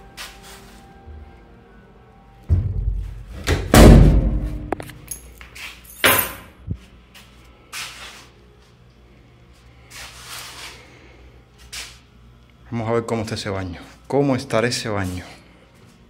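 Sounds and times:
door thump: 2.5s - 4.8s.

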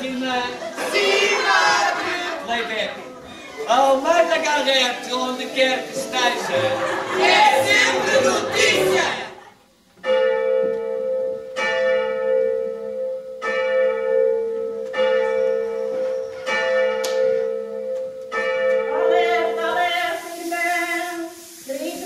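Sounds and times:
voices singing unaccompanied: 0.6s - 2.6s, 5.4s - 9.6s, 19.0s - 22.0s
church bell tolling: 10.0s - 19.6s.

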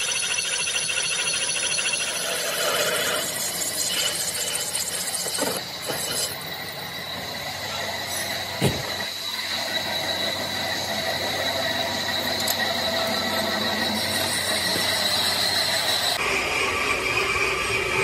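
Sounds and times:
high-pitched squeal: 0.0s - 18.0s
metal lathe running: 0.0s - 18.0s.

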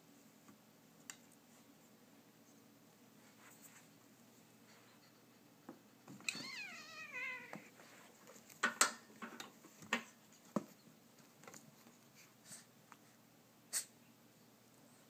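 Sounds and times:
cats scuffling: 5.7s - 13.0s
cat yowling: 6.3s - 7.7s.

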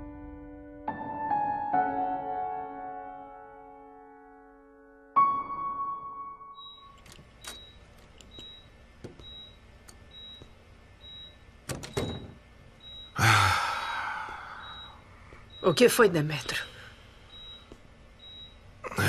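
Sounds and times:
patient monitor beeping: 6.5s - 19.0s.

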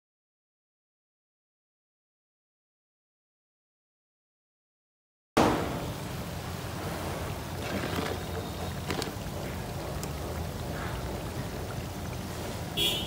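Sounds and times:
low rumble and hiss: 5.4s - 13.0s.

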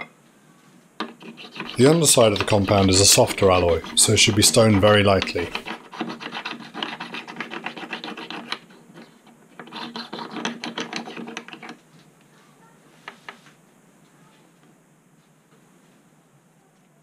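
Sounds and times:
stone scraping metal: 1.0s - 11.8s.

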